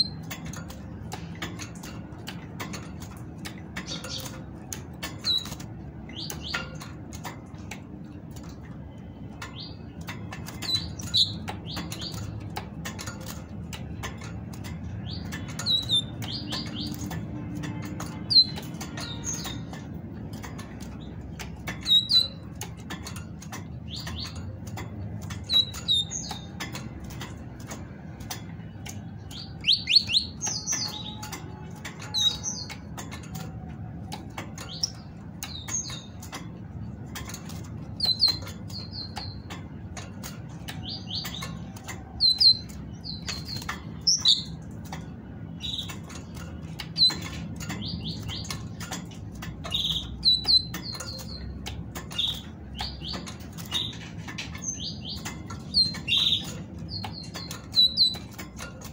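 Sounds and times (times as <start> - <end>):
light clicks in cage: 0.0 - 58.9
bird high chirps: 9.4 - 12.4, 14.8 - 20.0, 20.6 - 22.7, 23.9 - 26.8, 28.6 - 33.2, 37.2 - 39.6, 40.5 - 44.7, 49.6 - 58.7.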